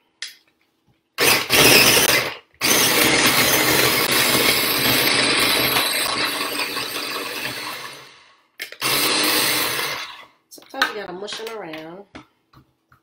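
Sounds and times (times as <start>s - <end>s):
food chopper grinding whir: 1.2s - 10.3s.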